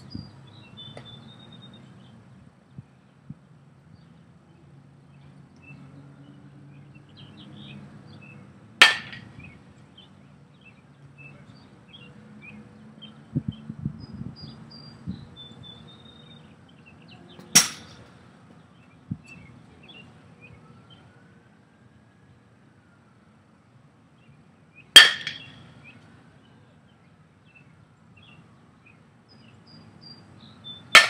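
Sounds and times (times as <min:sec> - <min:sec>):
bat cracking a baseball: 0:08.8 - 0:09.5, 0:17.5 - 0:18.1, 0:25.0 - 0:25.6.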